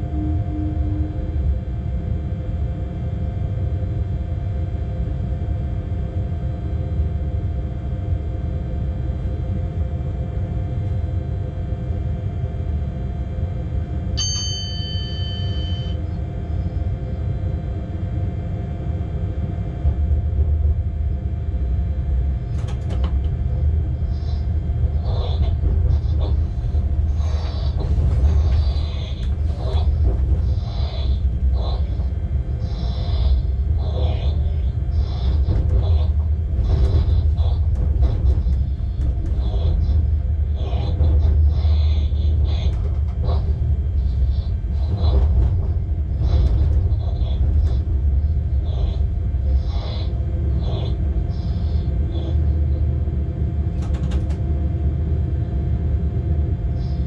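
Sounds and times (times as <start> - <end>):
locomotive rumble: 14.7 - 57.0
rattles and clatters: 22.0 - 52.8, 53.5 - 54.6.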